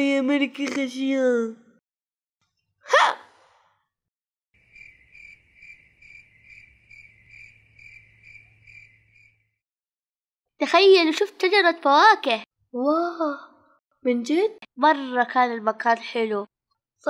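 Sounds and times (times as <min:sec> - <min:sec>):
crickets chirping: 0:04.6 - 0:09.6.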